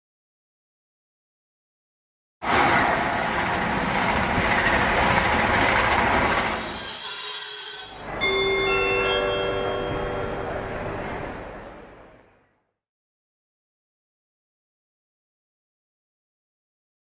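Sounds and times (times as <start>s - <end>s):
rush of train passing: 2.4s - 12.4s
steady high tones: 6.5s - 11.8s.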